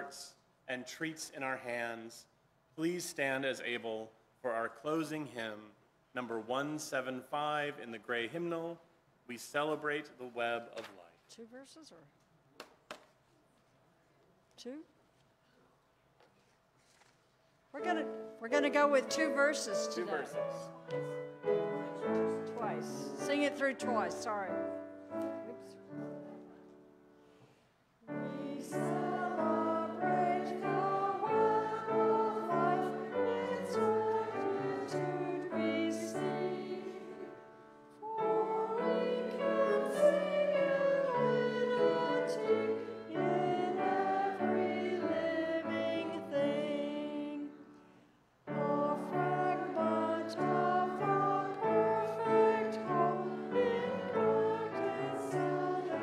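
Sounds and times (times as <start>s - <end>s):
piano accompaniment: 17.8s - 27.3s, 28.1s - 47.4s, 48.5s - 56.0s
congregation singing a hymn: 18.0s - 26.7s, 28.0s - 47.9s, 48.5s - 56.0s.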